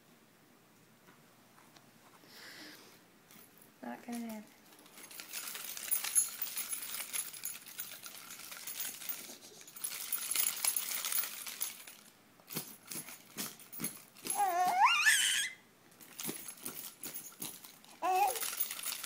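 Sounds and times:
keys jingling: 4.1 - 14.7, 16.0 - 19.0
baby squealing: 14.3 - 15.6, 18.0 - 18.5.

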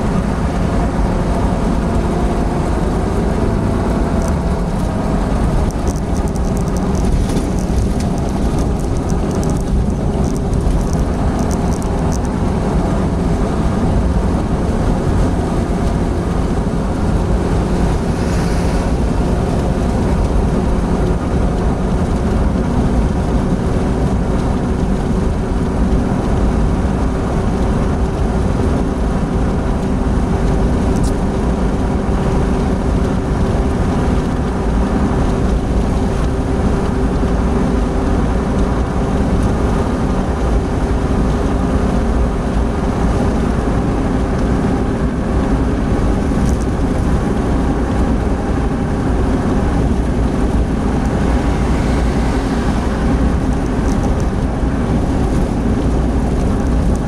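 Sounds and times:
car engine: 0.0 - 57.0
constant low hum: 0.0 - 57.0
wind noise: 0.0 - 57.0.

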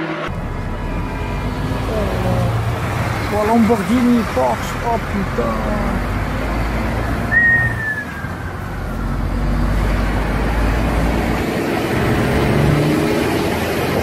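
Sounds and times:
brief falling whine: 0.0 - 1.4
vehicle engine and tyre rumble: 0.3 - 14.0.

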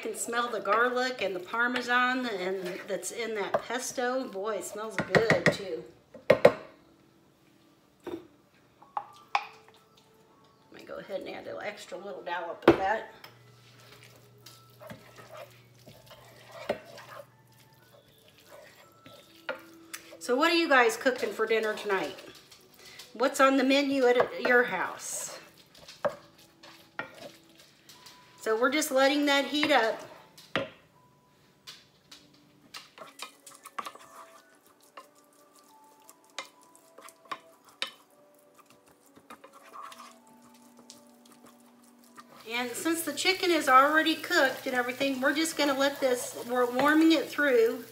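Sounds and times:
wooden spoon scraping a pan: 0.0 - 5.6, 13.5 - 30.2, 32.8 - 47.9.

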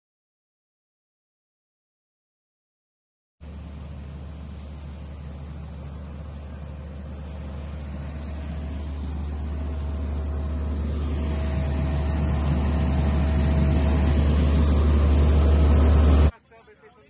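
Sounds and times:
low drone of engines: 3.4 - 16.4
faint steady whine: 3.4 - 17.0.

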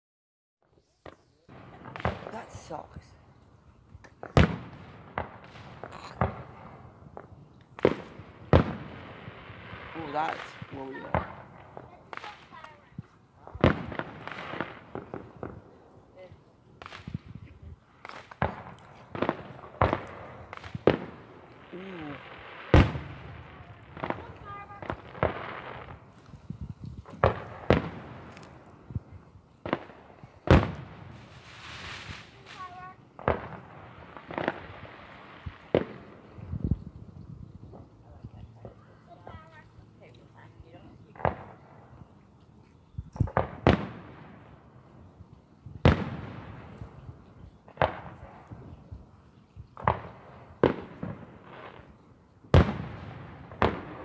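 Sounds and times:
fireworks bursting with bangs: 0.7 - 39.6, 40.3 - 42.2, 42.8 - 54.0
firework shells bursting: 16.8 - 37.1.

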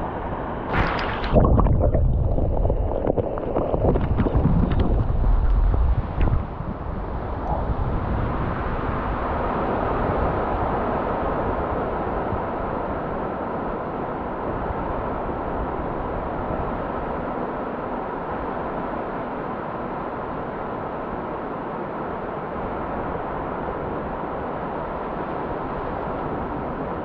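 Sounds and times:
wind buffeting microphone: 0.7 - 10.8.

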